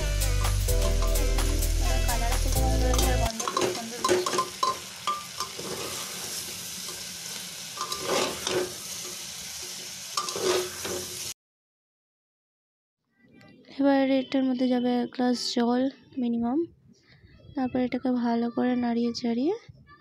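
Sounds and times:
music with heavy bass: 0.0s - 3.3s
chicken sizzling in a pot: 0.4s - 11.4s
metal spatula scraping a pot: 2.9s - 7.0s, 7.8s - 11.2s.

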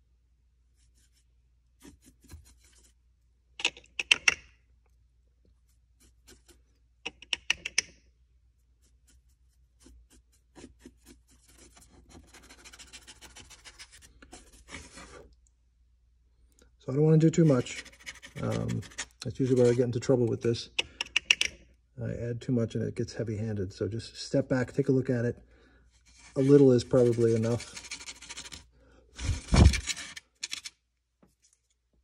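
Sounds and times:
stiff brush scrubbing plaster: 0.7s - 3.2s, 5.5s - 7.0s, 8.4s - 15.4s, 17.2s - 20.2s, 26.0s - 30.2s.

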